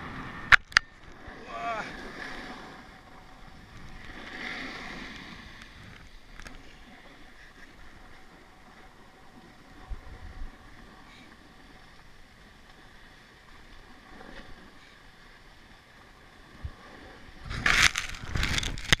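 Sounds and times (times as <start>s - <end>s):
skis sliding on snow: 1.2s - 19.0s.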